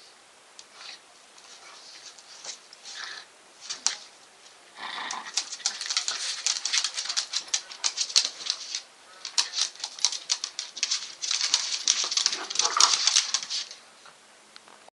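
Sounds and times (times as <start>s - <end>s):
dogs scuffling: 0.7s - 13.8s
dog claws scrabbling on hard floor: 3.6s - 4.1s, 5.1s - 13.8s.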